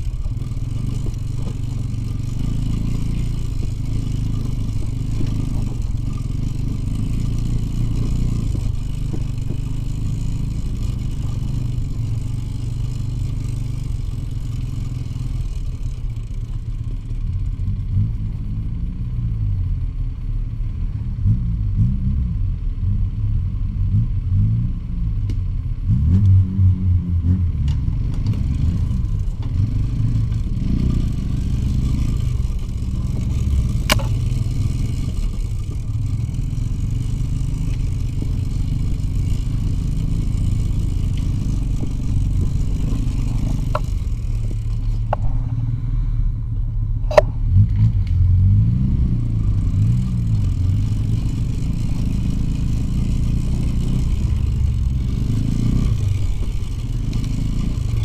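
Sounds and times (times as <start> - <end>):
two-stroke motorcycle engine revving: 0.0 - 19.8, 20.8 - 46.3, 47.0 - 58.0.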